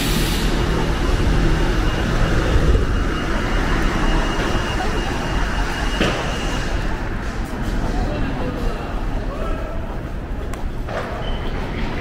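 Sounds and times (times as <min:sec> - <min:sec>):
passing vehicles rumble and hiss: 0:00.0 - 0:01.8.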